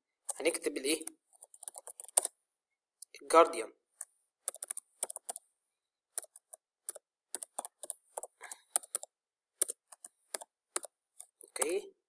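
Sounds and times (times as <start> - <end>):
computer keyboard keys clicking: 1.0 - 2.3, 4.5 - 5.4, 6.2 - 11.7.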